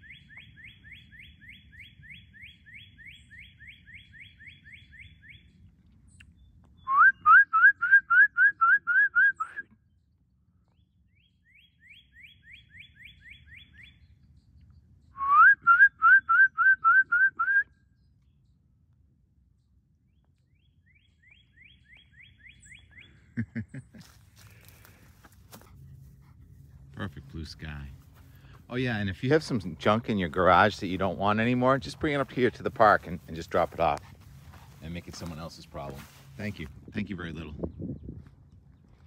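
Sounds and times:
bird whistling rising phrases: 6.8s - 9.7s, 15.1s - 17.8s.

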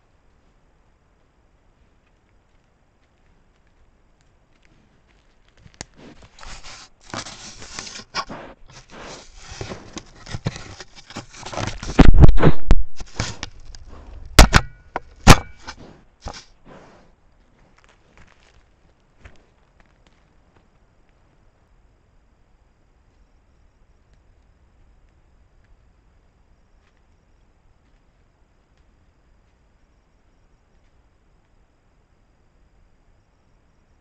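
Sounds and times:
faint scraping: 4.6s - 18.6s
boar sniffing: 5.8s - 11.9s.

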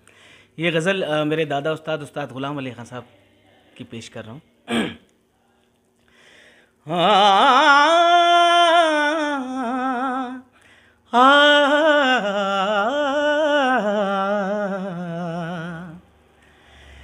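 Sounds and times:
singer breathing: 0.0s - 0.6s, 6.0s - 6.8s, 10.5s - 11.1s, 16.3s - 17.0s
man singing unaccompanied: 6.8s - 10.5s, 11.1s - 16.1s.

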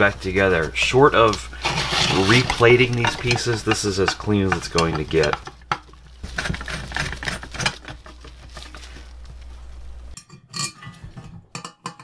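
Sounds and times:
metal clicks and scrapes of screws: 6.4s - 8.8s.

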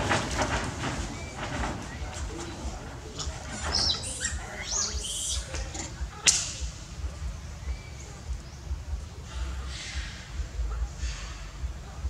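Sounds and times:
animal chirping calls: 3.2s - 7.0s.

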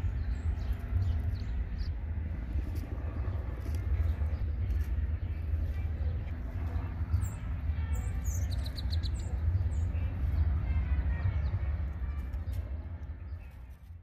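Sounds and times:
small songbirds chirping: 0.0s - 14.0s
steady low rumble: 0.0s - 14.0s.

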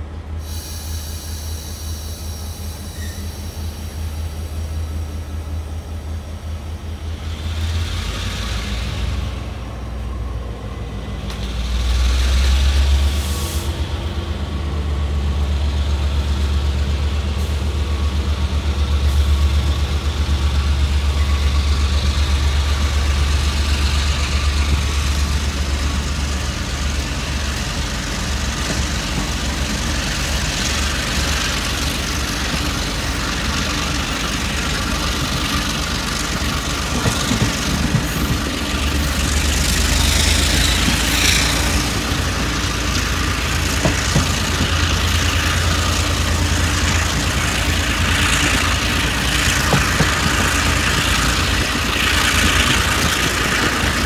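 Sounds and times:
diesel locomotive engine rumble: 0.0s - 54.0s.

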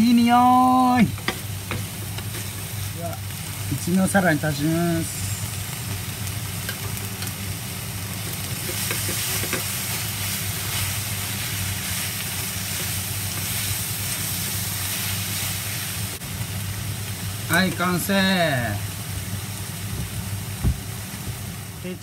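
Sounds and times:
food sizzling in a wok: 0.0s - 22.0s
chopsticks stirring in wok: 8.2s - 16.1s.

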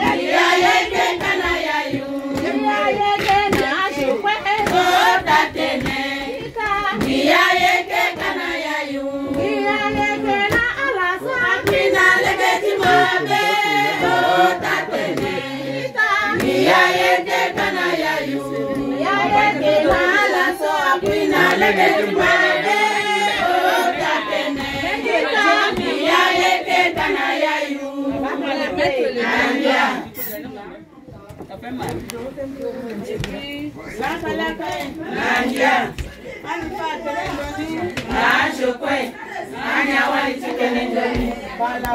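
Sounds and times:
hand claps: 0.0s - 8.6s
women singing in chorus: 0.0s - 30.4s, 33.0s - 41.9s.

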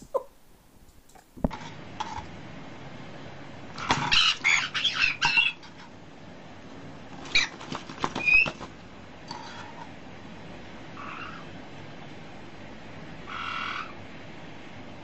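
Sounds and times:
bird squeak: 8.2s - 8.6s.

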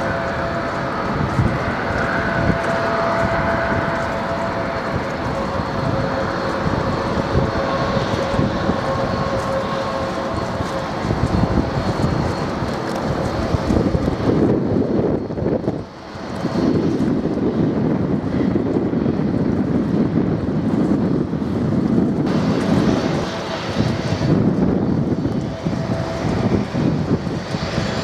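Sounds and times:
jet engines whining and rumbling: 0.0s - 28.0s
wind buffeting microphone: 0.0s - 28.0s.

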